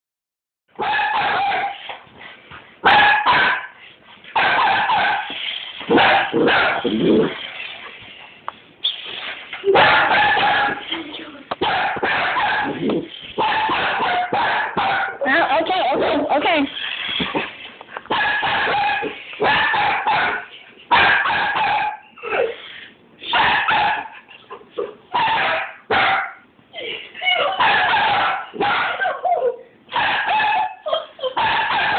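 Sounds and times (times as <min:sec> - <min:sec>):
dogs barking high-pitched: 0:00.8 - 0:02.0, 0:02.8 - 0:07.4, 0:09.6 - 0:10.9, 0:11.6 - 0:17.4, 0:18.1 - 0:22.5, 0:23.2 - 0:26.4, 0:27.3 - 0:31.9.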